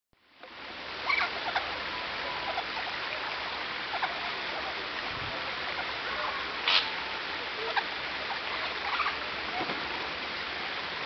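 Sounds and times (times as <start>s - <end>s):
steady rushing hiss: 0.2s - 11.0s
parrot calls: 1.0s - 1.7s, 8.5s - 9.7s.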